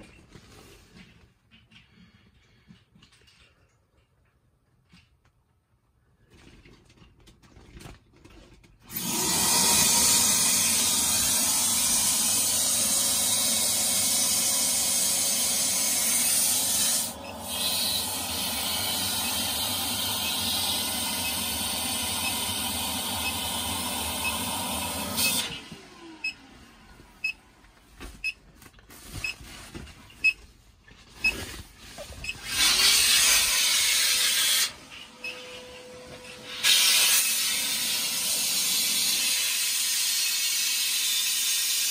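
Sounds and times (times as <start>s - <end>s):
plastic rustling: 27.8s - 32.2s.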